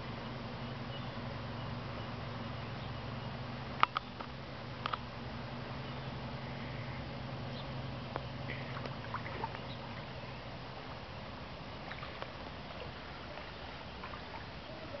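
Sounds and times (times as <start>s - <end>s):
truck engine hum: 0.0s - 15.0s
water washing: 8.5s - 15.0s.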